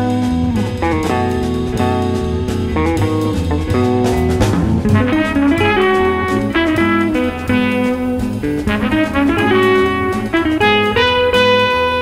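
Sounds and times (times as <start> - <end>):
guitar band music with drums: 0.0 - 12.0.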